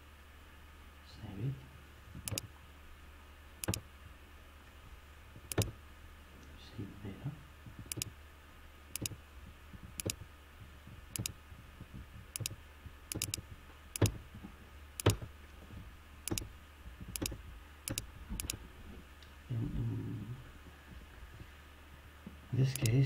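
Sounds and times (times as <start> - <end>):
low steady hum: 0.0 - 23.0
computer mouse button clicking: 3.6 - 3.8, 5.5 - 5.7, 7.9 - 8.1, 9.0 - 9.2, 10.0 - 10.2, 11.2 - 11.4, 12.4 - 13.4, 14.0 - 14.2, 16.3 - 16.5, 17.2 - 18.6, 22.8 - 23.0.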